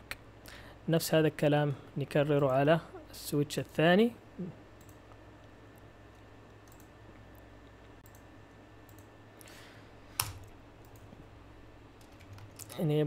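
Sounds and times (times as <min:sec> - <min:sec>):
low steady hum: 0:00.0 - 0:13.0
computer mouse clicking: 0:04.8 - 0:05.1, 0:06.5 - 0:07.4, 0:08.0 - 0:08.3, 0:08.9 - 0:09.1, 0:10.2 - 0:11.1.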